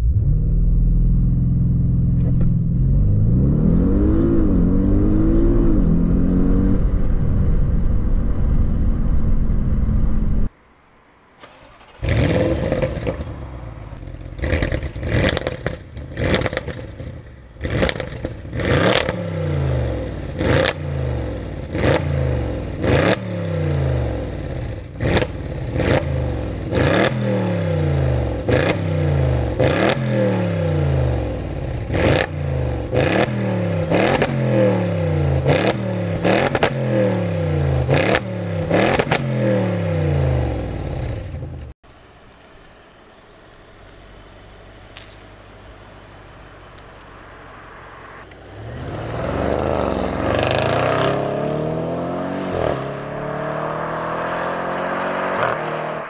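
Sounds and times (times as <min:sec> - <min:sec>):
exhaust cracks: 0:00.0 - 0:03.1, 0:11.4 - 0:19.2
car engine revving: 0:00.0 - 0:10.5, 0:11.4 - 0:41.8, 0:43.6 - 0:56.0.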